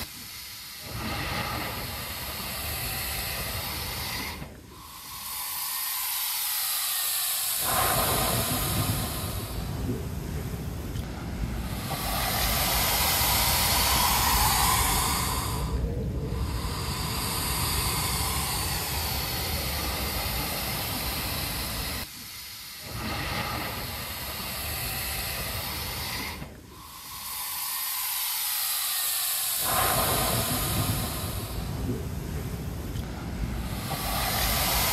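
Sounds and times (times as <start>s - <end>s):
blowhole air and spray hissing: 0.0s - 34.9s
sea waves breaking: 7.5s - 22.0s, 29.6s - 34.9s.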